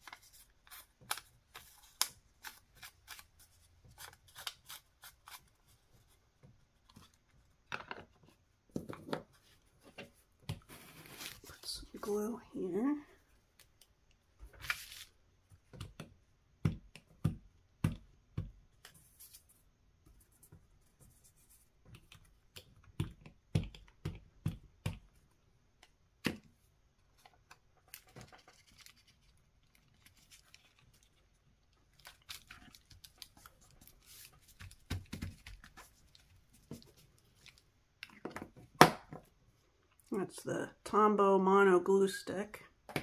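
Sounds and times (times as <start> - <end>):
paper rustling: 0.0 - 6.2, 9.3 - 11.7, 14.4 - 15.2, 27.2 - 37.6.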